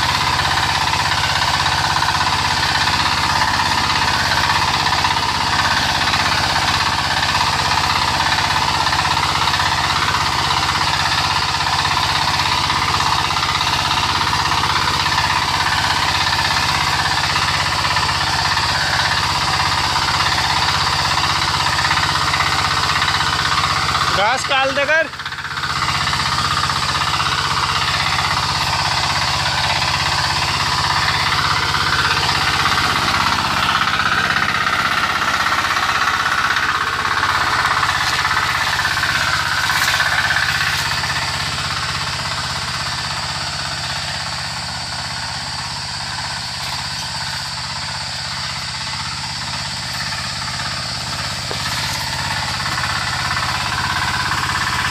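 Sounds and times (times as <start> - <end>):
diesel tiller engine knocking: 0.0 - 54.9.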